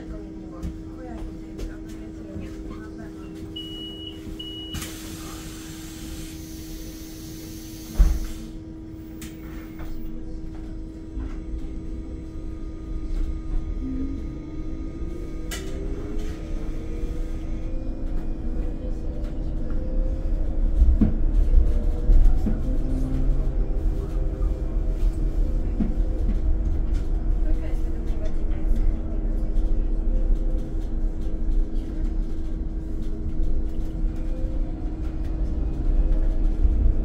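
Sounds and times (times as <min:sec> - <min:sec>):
door-warning beeps: 0:03.6 - 0:04.9.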